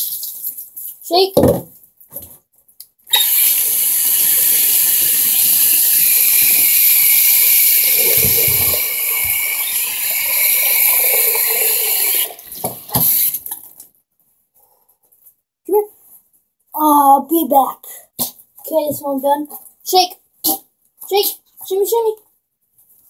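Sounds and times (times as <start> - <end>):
tap water splashing into bathtub: 10.3 - 13.6.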